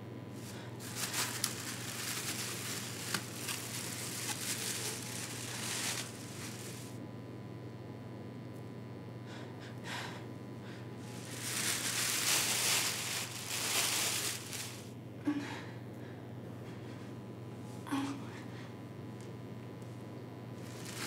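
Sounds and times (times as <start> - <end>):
steady low hum: 0.0 - 21.0
person breathing heavily: 0.4 - 1.4.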